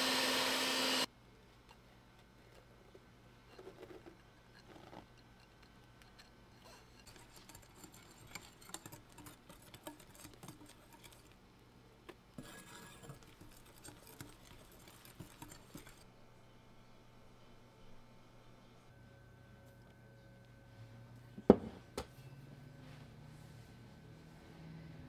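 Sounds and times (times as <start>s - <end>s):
whisk scraping glass bowl: 6.0s - 11.4s, 12.4s - 16.1s.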